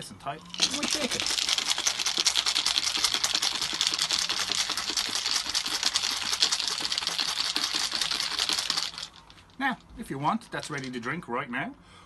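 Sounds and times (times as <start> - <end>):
ice cubes rattling in glass jar: 0.4 - 9.5.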